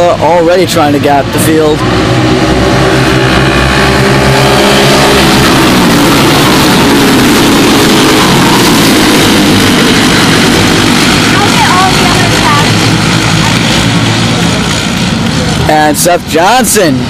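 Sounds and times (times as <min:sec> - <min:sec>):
go-kart engines racing: 0:00.0 - 0:17.0
go-kart passing close: 0:00.3 - 0:13.6.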